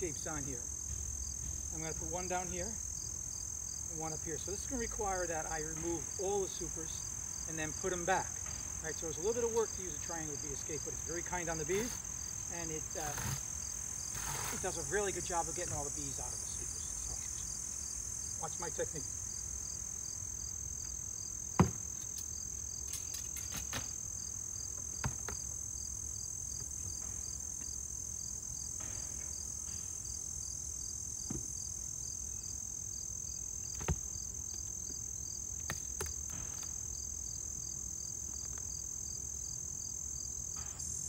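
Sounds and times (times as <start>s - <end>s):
crickets chirping: 0.0s - 41.0s
hive covers knocking: 21.6s - 21.9s.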